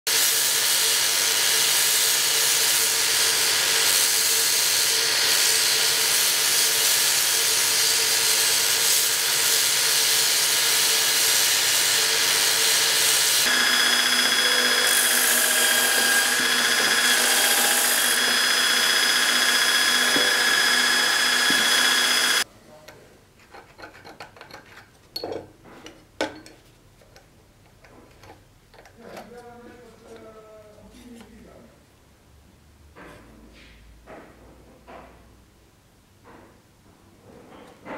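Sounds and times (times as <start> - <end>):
belt grinder grinding steel: 0.1 - 22.4
high grinding whine: 1.0 - 22.4.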